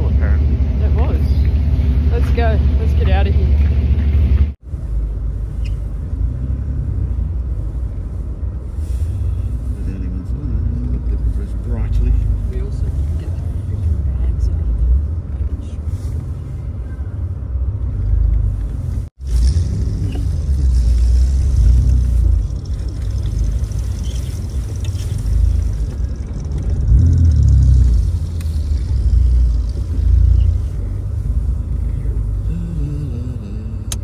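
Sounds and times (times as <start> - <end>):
car engine and road rumble: 0.0 - 34.0.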